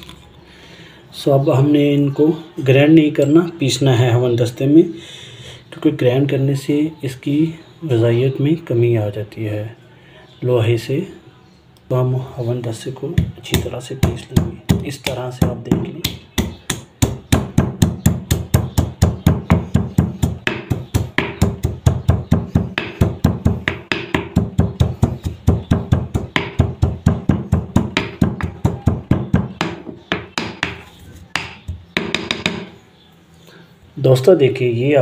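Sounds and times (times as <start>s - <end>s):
stone pestle pounding in mortar: 13.2s - 30.8s, 31.4s - 32.7s.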